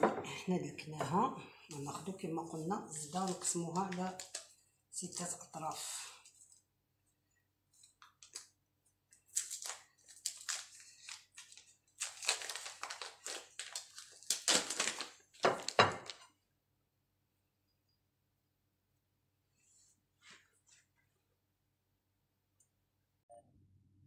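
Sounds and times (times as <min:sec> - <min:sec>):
butter wrapper crinkling: 0:02.9 - 0:04.6, 0:07.8 - 0:16.3.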